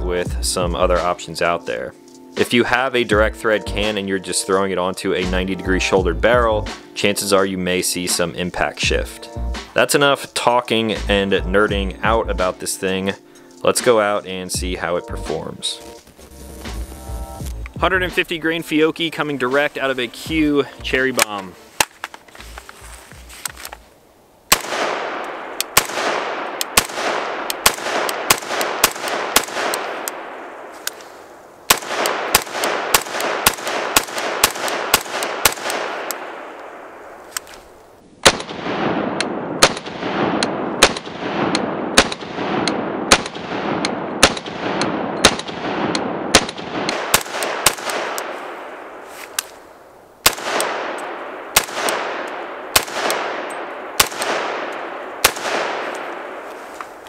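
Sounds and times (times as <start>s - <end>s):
rifle shots ringing out: 24.5s - 37.4s, 38.2s - 57.0s.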